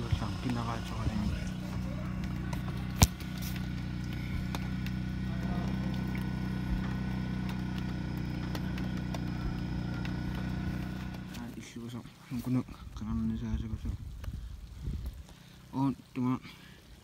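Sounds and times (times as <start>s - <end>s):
low machine hum: 0.0s - 11.6s.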